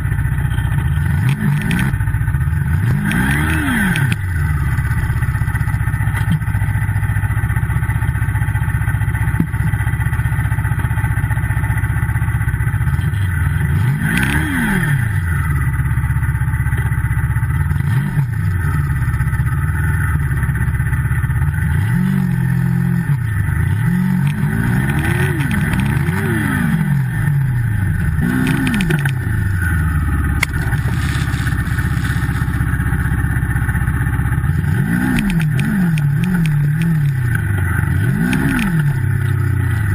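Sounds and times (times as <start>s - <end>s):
snowmobile engine revving: 0.9s - 6.8s, 13.0s - 15.3s, 21.6s - 33.8s, 34.4s - 39.9s.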